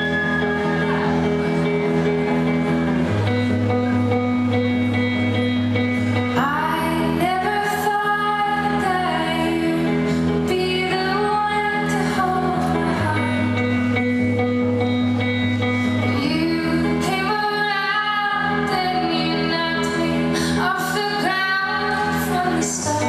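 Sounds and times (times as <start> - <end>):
live band playing pop ballad: 0.0 - 23.0
woman singing: 6.2 - 14.4, 15.9 - 23.0.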